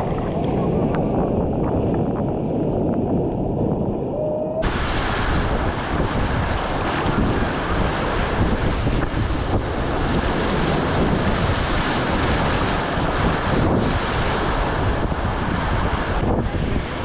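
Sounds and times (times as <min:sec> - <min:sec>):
waves breaking over raft: 0:00.0 - 0:17.0
wind rumbling on microphone: 0:00.0 - 0:17.0
whitewater rapids rushing: 0:04.0 - 0:14.9.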